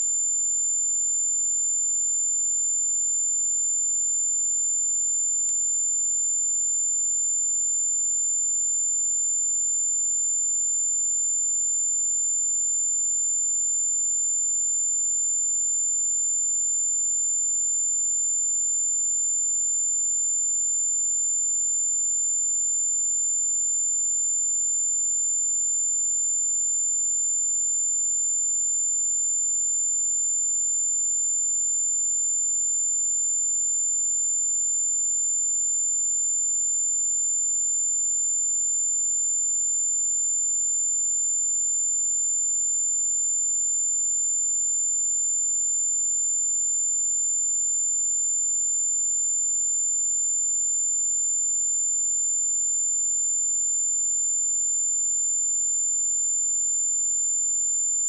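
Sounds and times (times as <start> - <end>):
high-pitched sine test tone: 0.0 - 2.0.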